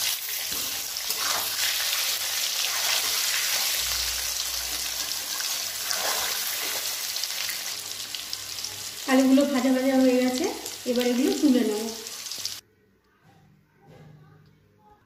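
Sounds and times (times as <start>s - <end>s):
potatoes sizzling in oil: 0.0s - 12.6s
metal spatula scraping pan: 0.5s - 3.8s, 4.7s - 7.0s.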